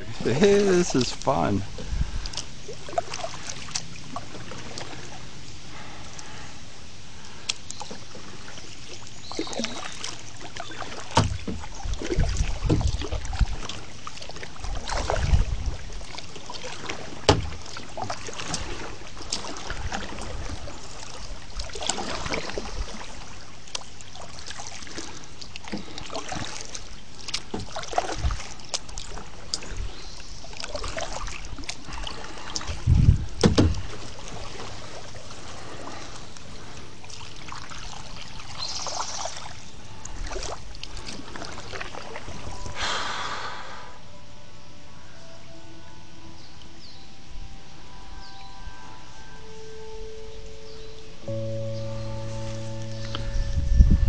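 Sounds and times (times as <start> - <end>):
paddle swishing water: 0.0 - 43.9, 50.3 - 54.0
low thumps against boat: 10.8 - 13.8, 16.9 - 18.8, 32.6 - 34.7.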